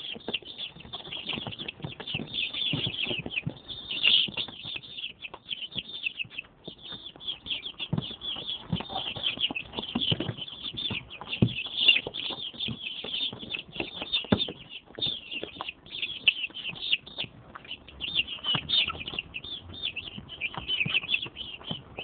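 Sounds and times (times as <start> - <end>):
chicks peeping: 0.0 - 22.0.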